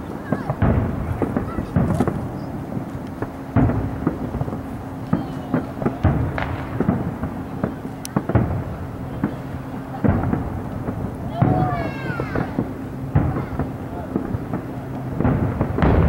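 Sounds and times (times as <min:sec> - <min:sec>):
firework shells booming: 0:00.0 - 0:16.0
small pops and crackles: 0:00.3 - 0:08.5.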